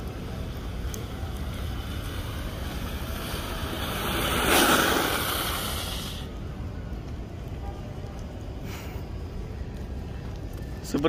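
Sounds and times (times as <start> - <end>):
skate wheels hissing on wet asphalt: 0.0 - 7.6, 8.6 - 9.4.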